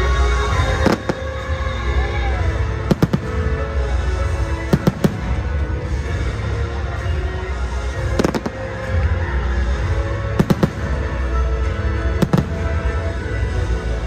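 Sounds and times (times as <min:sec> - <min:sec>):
music with deep bass: 0:00.0 - 0:14.0
fireworks bursting: 0:00.5 - 0:06.4, 0:07.7 - 0:09.4, 0:10.2 - 0:13.6.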